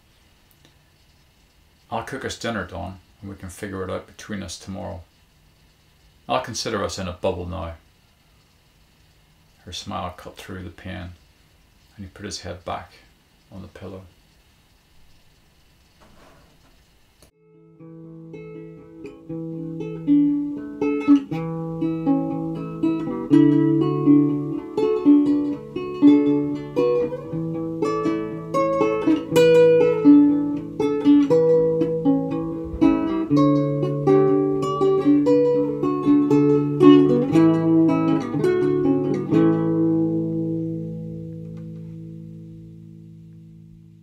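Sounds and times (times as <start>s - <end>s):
guitar picking notes: 17.4s - 44.0s.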